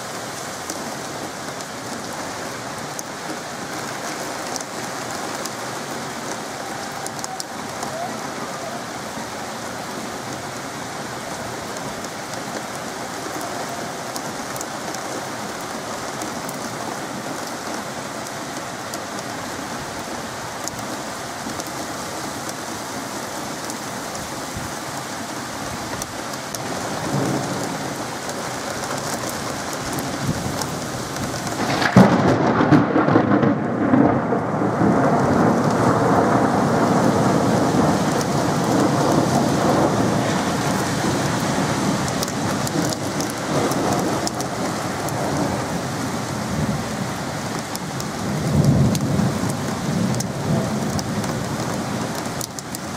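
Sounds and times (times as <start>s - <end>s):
heavy rain pouring: 0.0s - 52.9s
thunder rumbling: 4.4s - 14.6s, 29.5s - 52.9s.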